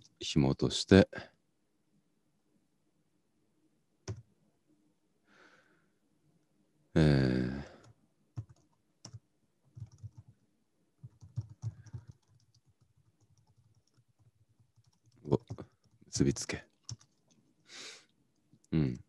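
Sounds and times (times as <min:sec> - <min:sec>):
man humming: 0:07.0 - 0:07.8, 0:18.7 - 0:19.0.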